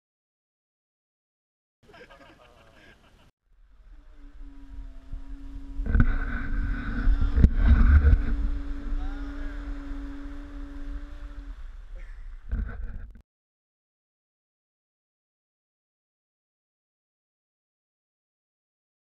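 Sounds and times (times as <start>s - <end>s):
low rumble: 3.5s - 13.2s
conch shell blown: 3.6s - 12.9s
surf washing in: 3.8s - 12.8s.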